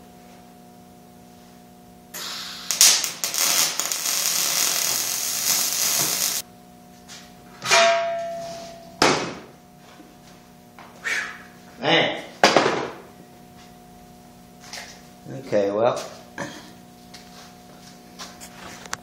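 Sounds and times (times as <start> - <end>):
welding arc crackling: 2.1 - 6.4
metal clank ringing: 7.6 - 9.0.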